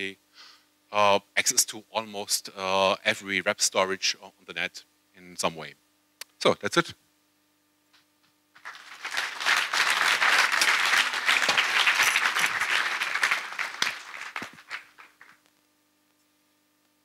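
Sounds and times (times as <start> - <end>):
audience applauding: 8.6 - 15.4.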